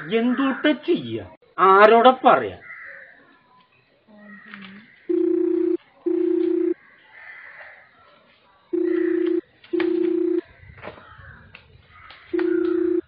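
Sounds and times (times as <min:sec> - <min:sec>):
telephone ringing: 0:05.1 - 0:06.8, 0:08.7 - 0:10.4, 0:12.3 - 0:13.0.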